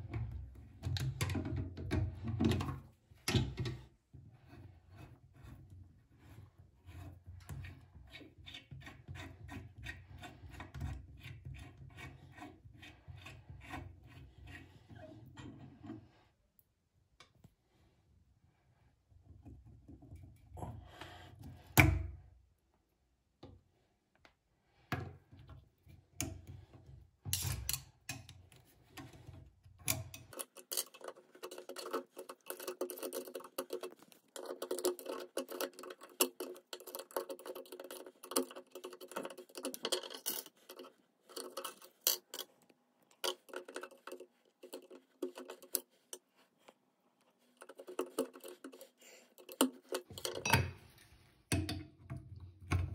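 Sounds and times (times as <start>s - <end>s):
metal tools clicking and scraping: 29.9s - 42.6s.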